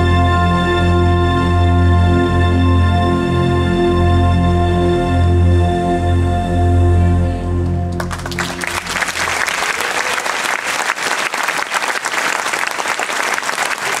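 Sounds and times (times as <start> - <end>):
held music chords: 0.0 - 9.6
audience applause: 7.9 - 14.0.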